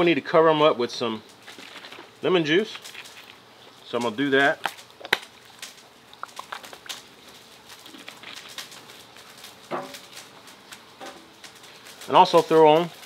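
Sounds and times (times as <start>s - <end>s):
bottle clicks and crackles: 4.4s - 8.8s
squeeze bottle squirting and sputtering: 4.5s - 9.3s.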